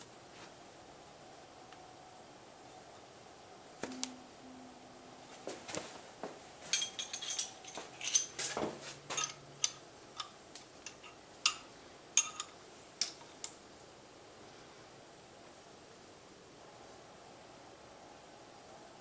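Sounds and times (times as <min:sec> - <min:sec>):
wrench clinking on nuts: 0:06.7 - 0:13.2.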